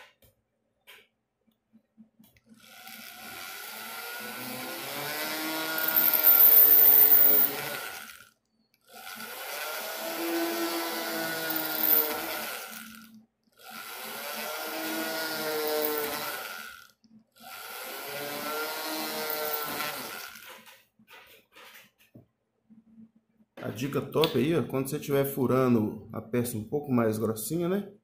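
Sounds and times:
mini drill drilling metal: 2.5s - 20.8s.

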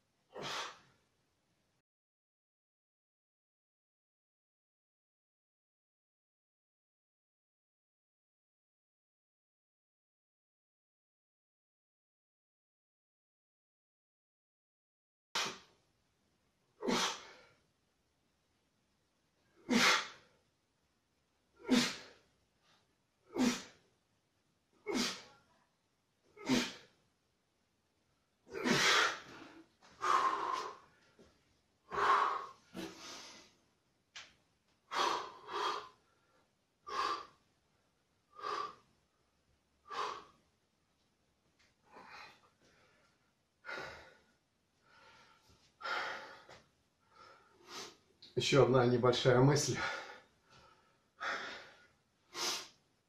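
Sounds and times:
man breathing heavily: 0.3s - 0.9s, 16.8s - 17.6s, 21.6s - 22.3s, 28.5s - 31.3s, 31.9s - 33.6s, 34.8s - 37.4s, 38.3s - 38.9s, 39.8s - 40.4s, 41.8s - 48.1s, 49.8s - 52.8s
man exhaling forcefully: 28.6s - 30.8s.

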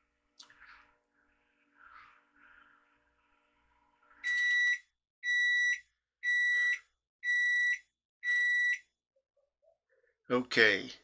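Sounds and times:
microwave beeps: 4.2s - 9.0s.

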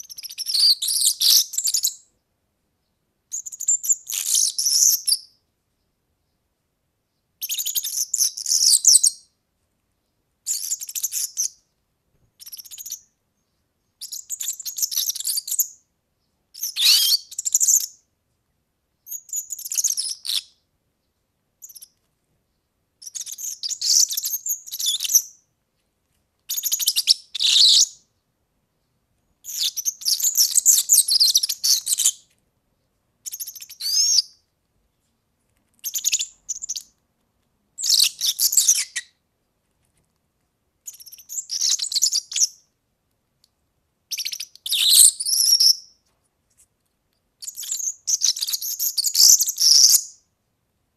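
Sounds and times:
bird twittering high-pitched: 0.0s - 2.1s, 3.3s - 5.4s, 7.4s - 9.3s, 10.5s - 11.6s, 12.4s - 15.8s, 16.6s - 18.0s, 19.0s - 20.6s, 21.6s - 21.9s, 23.0s - 25.4s, 26.5s - 28.1s, 29.4s - 32.2s, 33.2s - 34.4s, 35.8s - 36.9s, 37.8s - 39.1s, 40.8s - 42.6s, 44.1s - 46.0s, 47.4s - 50.2s.

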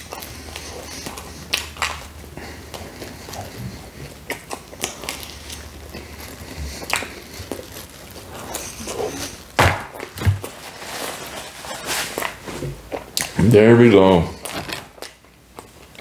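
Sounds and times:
close chewing: 0.0s - 13.4s
paper rustling: 7.4s - 12.8s.

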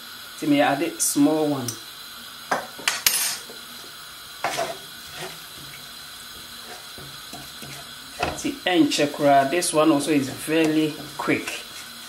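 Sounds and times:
wooden spatula knocking in pan: 4.4s - 8.6s, 10.4s - 11.3s.

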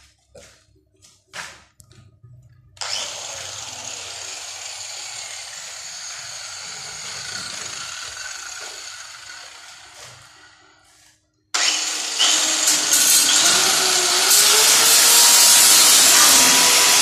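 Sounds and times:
angle grinder whining: 2.8s - 11.0s, 11.6s - 17.0s.

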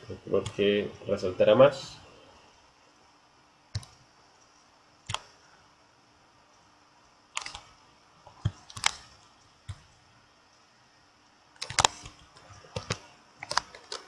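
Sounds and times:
faint room hiss: 0.0s - 14.0s
computer mouse clicks: 3.7s - 5.4s, 6.5s - 10.6s, 11.6s - 14.0s.

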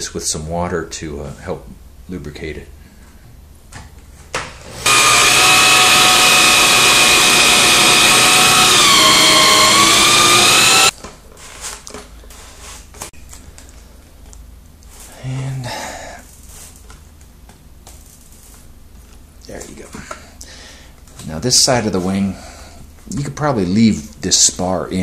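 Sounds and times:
power drill whining: 4.6s - 10.9s.

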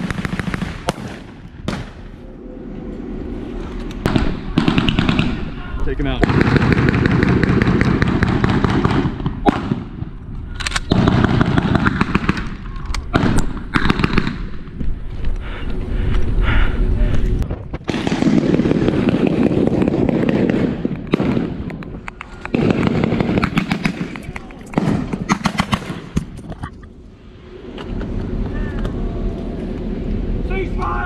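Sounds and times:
gunshots: 0.0s - 2.1s, 4.0s - 10.1s, 10.7s - 14.7s, 17.8s - 21.7s, 22.5s - 26.4s
low rumble: 0.0s - 31.0s.

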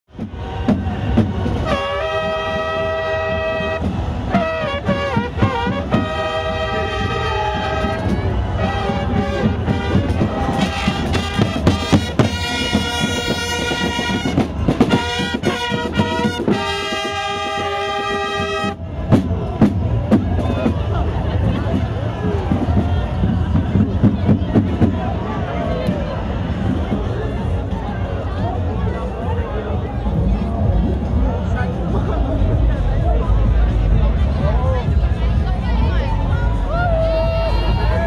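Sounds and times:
steady drumming: 0.1s - 25.3s
brass chords sliding: 1.4s - 18.9s.

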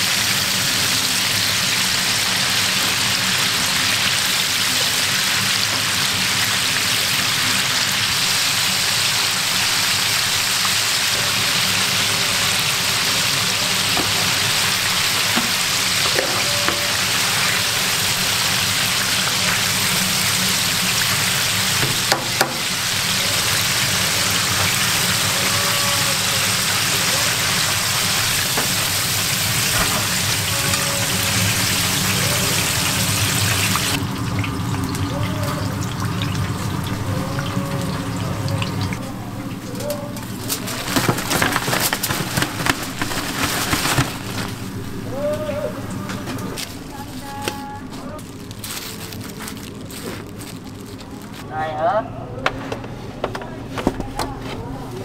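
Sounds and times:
chicken deep-frying in oil: 0.0s - 51.2s.

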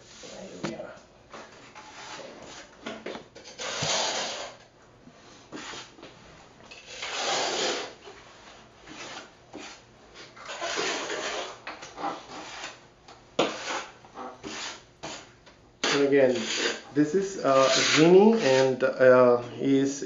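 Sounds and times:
trowel scraping mortar: 3.5s - 4.6s, 6.7s - 8.0s, 8.8s - 12.8s, 13.4s - 18.8s.

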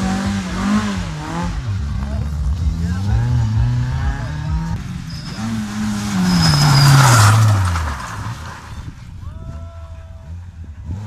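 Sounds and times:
rally car engine passing: 0.0s - 9.3s
tyres rushing on gravel: 4.8s - 9.5s.

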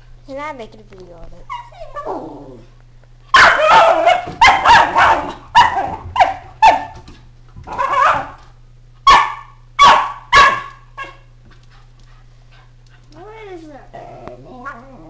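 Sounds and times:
dog barking: 3.3s - 7.0s, 7.7s - 8.4s, 9.1s - 11.3s.

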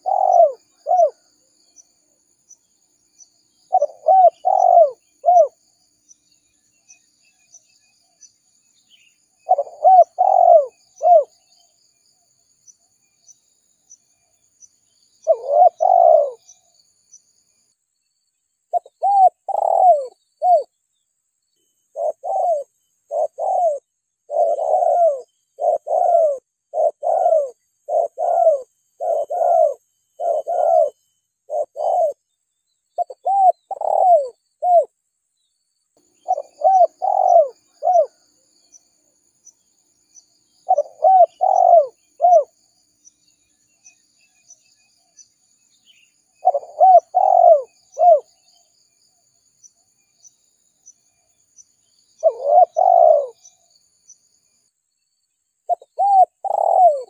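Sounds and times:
dove cooing: 0.0s - 1.2s, 3.7s - 5.6s, 9.4s - 11.4s, 15.2s - 16.6s, 18.7s - 20.7s, 21.9s - 32.2s, 33.0s - 34.9s, 36.2s - 38.2s, 40.6s - 42.5s, 46.4s - 48.4s, 52.2s - 53.5s, 55.7s - 57.0s.

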